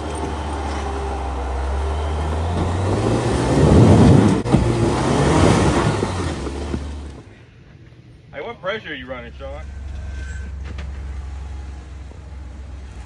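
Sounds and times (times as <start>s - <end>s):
engine revving under load: 0.0s - 7.3s, 9.5s - 13.0s
tyres spinning in dirt: 0.0s - 7.4s.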